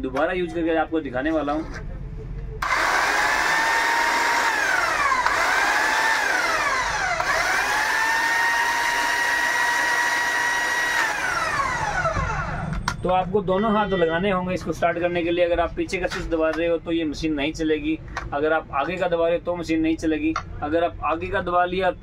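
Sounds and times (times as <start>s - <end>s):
electric hedge trimmer whine: 2.6s - 12.8s.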